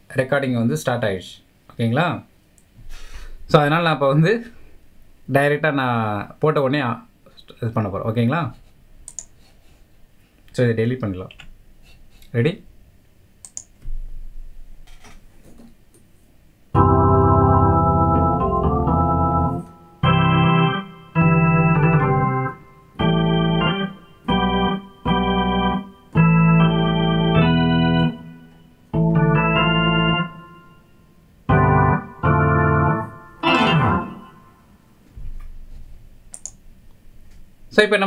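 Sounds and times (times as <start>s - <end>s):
organ chords on keyboard: 16.8s - 34.8s.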